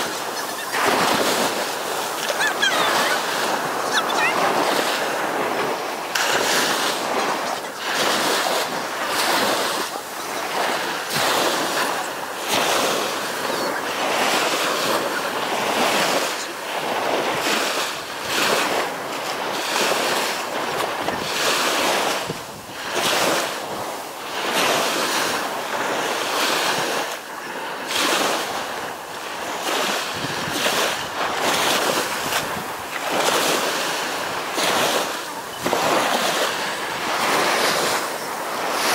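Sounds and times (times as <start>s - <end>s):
wind on the microphone: 0.0s - 27.1s, 29.6s - 38.9s
waves washing up a beach: 0.0s - 38.9s.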